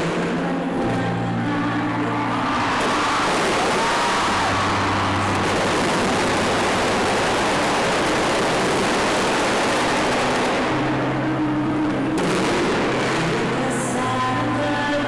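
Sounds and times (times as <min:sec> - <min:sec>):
fireworks crackling and popping: 0:00.0 - 0:00.6, 0:02.3 - 0:14.2
sharp firework burst: 0:02.6 - 0:11.2, 0:12.2 - 0:13.8.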